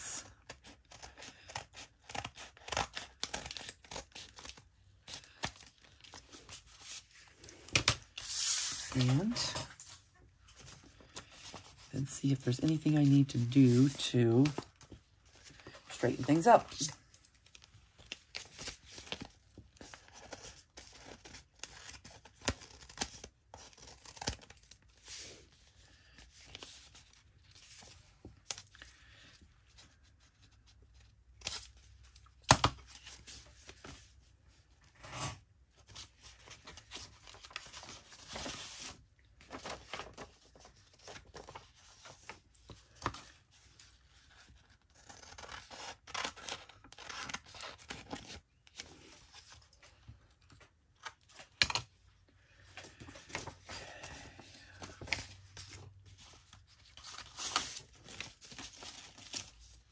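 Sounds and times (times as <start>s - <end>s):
paper rustling: 2.2s - 25.3s, 35.9s - 48.4s.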